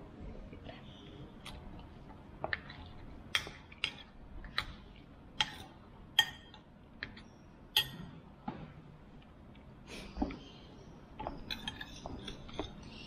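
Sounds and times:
metal spoon clinking on ceramic bowl: 6.2s - 6.6s, 7.8s - 8.1s.

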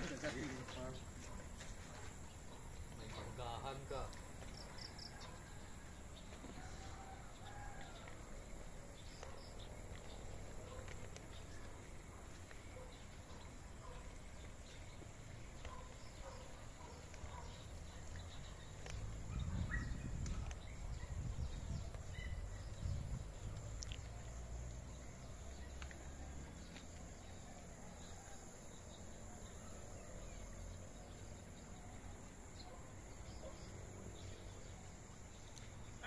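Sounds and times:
insects: 0.0s - 36.0s
low rumble on microphone: 18.4s - 23.8s.

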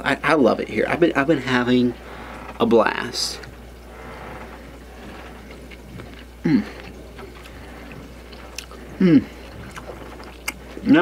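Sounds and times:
steady low hum: 0.0s - 11.0s
chewing food: 3.2s - 11.0s
man humming with mouth closed: 6.4s - 7.2s, 8.5s - 10.6s.

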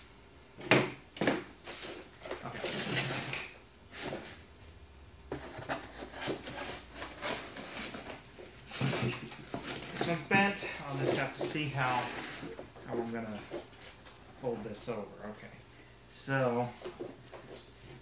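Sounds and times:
cardboard scraping slide: 1.7s - 4.4s, 5.3s - 8.1s, 11.8s - 12.6s.

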